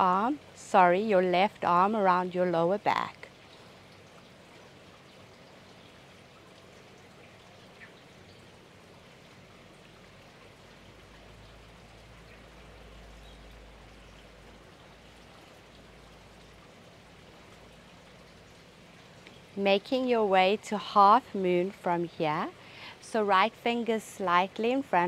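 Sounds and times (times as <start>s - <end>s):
faint background hiss: 0.0s - 25.0s
light ticks: 19.2s - 19.4s.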